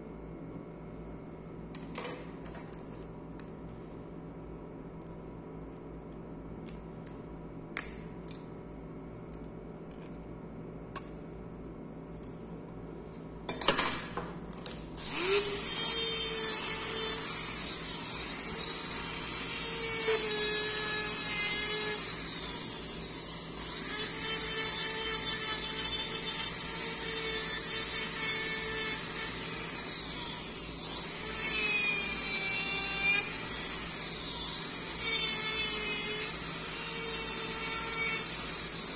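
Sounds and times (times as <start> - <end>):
micromotor whining and grinding: 15.0 - 38.9.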